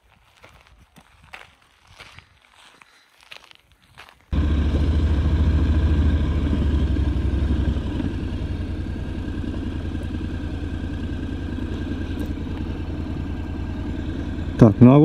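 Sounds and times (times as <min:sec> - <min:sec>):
motorcycle engine running: 0:04.3 - 0:15.0.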